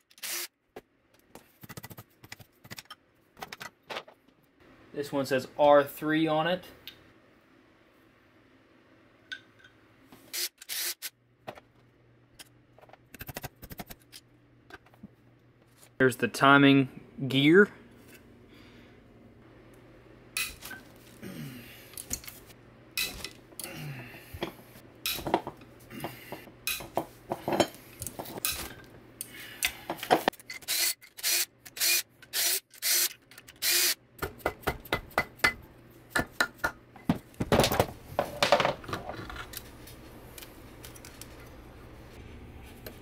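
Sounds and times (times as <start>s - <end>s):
impact driver bursts: 10.3s - 11.1s, 30.7s - 34.0s.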